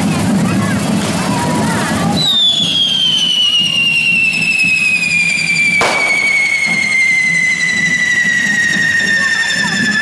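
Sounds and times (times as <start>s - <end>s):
firework shrill whistle: 2.1s - 10.0s
firecracker bang: 2.2s - 10.0s.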